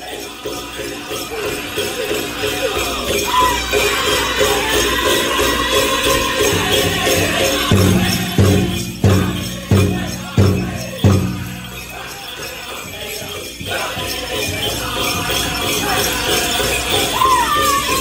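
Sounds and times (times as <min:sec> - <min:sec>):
bells jingling: 0:00.0 - 0:18.0
drum and singers: 0:00.0 - 0:18.0
hard drum beats: 0:05.2 - 0:18.0.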